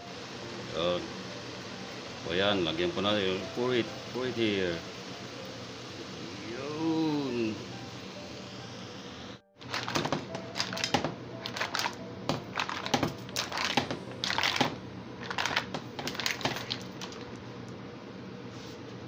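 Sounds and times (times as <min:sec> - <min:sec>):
mussel shells clattering in a pan: 0:09.6 - 0:17.3.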